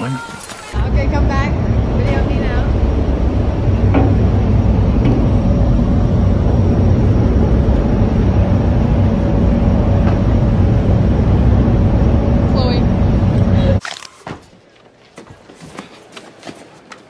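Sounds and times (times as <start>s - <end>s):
low rumble: 0.8s - 13.8s.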